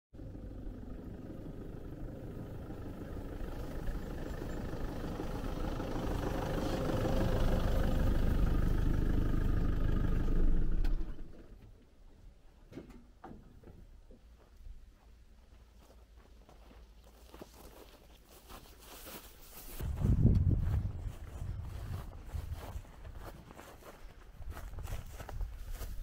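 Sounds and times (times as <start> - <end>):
truck engine running: 0.2 - 11.6.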